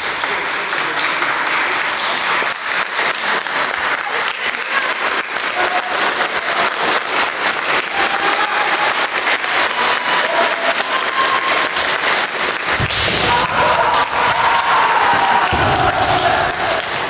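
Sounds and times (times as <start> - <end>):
spectators clapping: 0.0 - 17.0
fighters shouting: 13.1 - 17.0.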